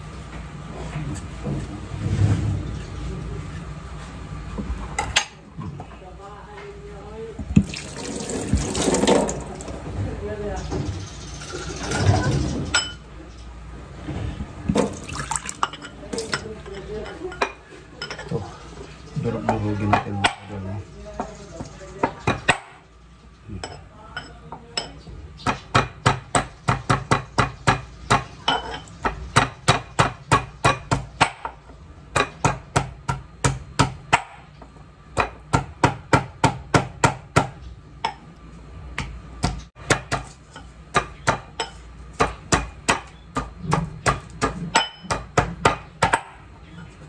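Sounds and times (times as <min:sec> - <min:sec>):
pestle pounding in metal mortar: 0:25.4 - 0:38.2, 0:39.0 - 0:46.5.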